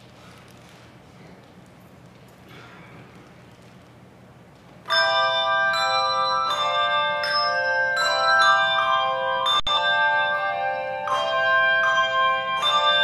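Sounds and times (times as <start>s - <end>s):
handbell choir ringing chords: 4.9s - 13.0s.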